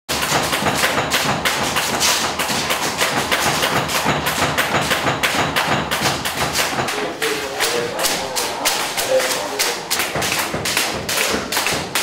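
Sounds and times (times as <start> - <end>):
boxing gloves hitting punch bags: 0.1 - 6.8.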